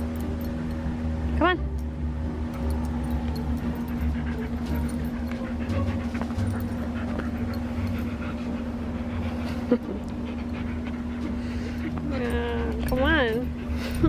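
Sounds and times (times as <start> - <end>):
steady low hum: 0.0 - 14.0
dog panting: 3.3 - 14.0.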